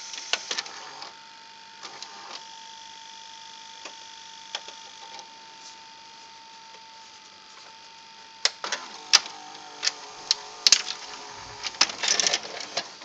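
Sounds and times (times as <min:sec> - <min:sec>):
tape recorder mechanism whine: 0:00.0 - 0:13.0
tape mechanism clicks and clacks: 0:08.4 - 0:13.0.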